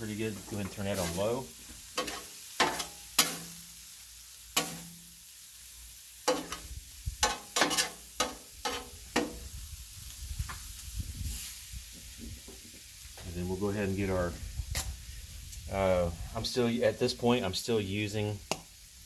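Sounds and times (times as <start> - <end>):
food sizzling: 0.0 - 19.0
metal spatula scraping on griddle: 0.2 - 3.9, 4.5 - 5.2, 6.2 - 9.6, 10.4 - 11.7.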